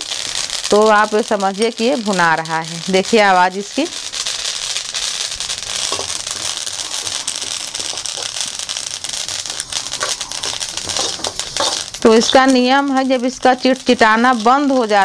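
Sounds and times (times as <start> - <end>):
seeds crackling while roasting: 0.0 - 15.0
ladle stirring seeds: 5.4 - 12.8.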